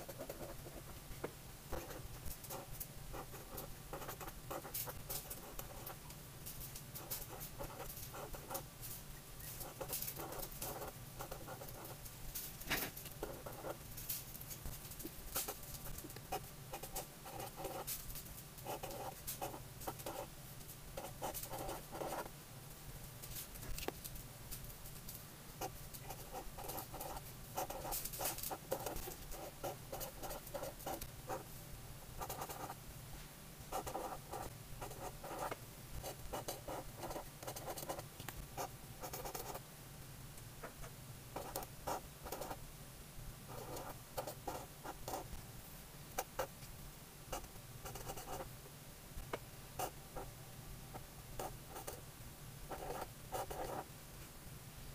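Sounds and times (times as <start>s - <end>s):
marker writing on paper: 0.0s - 0.9s, 1.7s - 6.0s, 9.6s - 12.0s, 16.3s - 17.9s, 18.6s - 20.3s, 21.0s - 22.3s, 25.6s - 31.4s, 32.2s - 32.8s, 33.7s - 38.0s, 38.6s - 39.6s, 41.4s - 42.6s, 43.5s - 45.3s, 47.3s - 48.5s, 52.7s - 53.8s.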